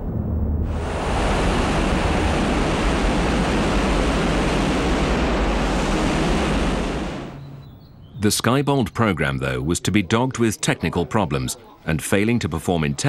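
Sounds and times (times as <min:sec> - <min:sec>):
rocket motor roaring: 0:00.0 - 0:07.4.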